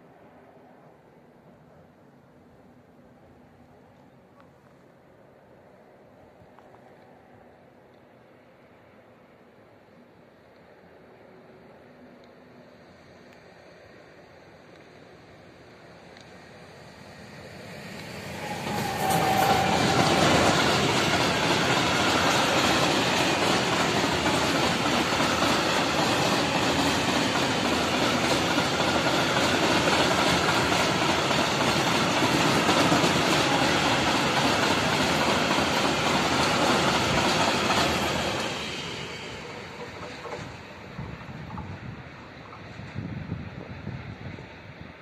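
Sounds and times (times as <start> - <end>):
freight train rolling past: 10.8 - 45.0.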